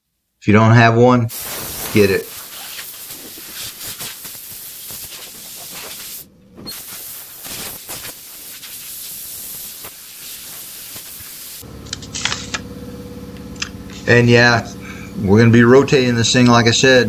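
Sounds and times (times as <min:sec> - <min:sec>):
compressed air hissing from nozzle: 0:01.3 - 0:12.6.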